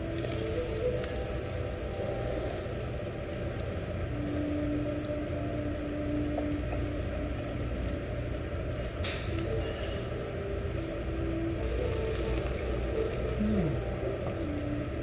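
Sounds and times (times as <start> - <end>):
grill hum and hiss: 0.0 - 15.0
restaurant room noise: 0.0 - 15.0.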